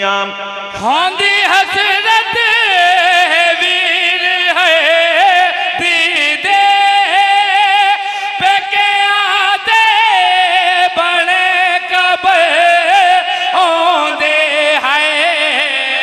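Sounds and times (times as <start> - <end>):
man singing a mourning lament: 0.0 - 16.0.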